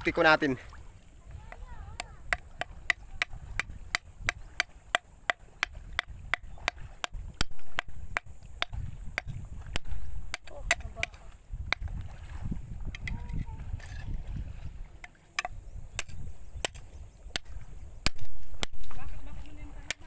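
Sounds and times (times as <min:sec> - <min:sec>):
knife chopping rock: 0:02.0 - 0:12.0, 0:15.4 - 0:19.0.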